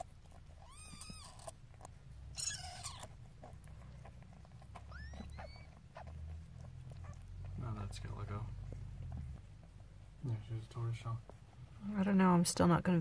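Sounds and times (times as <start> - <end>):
kittens squeaking: 0.0 - 10.2
cat licking and rustling: 0.0 - 13.0.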